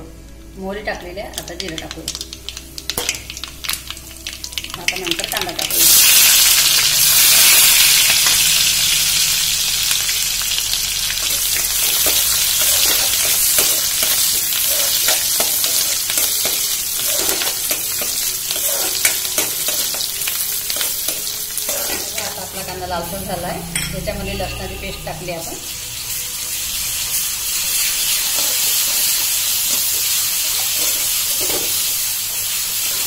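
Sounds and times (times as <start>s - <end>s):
onion sizzling in oil: 0.1s - 33.0s.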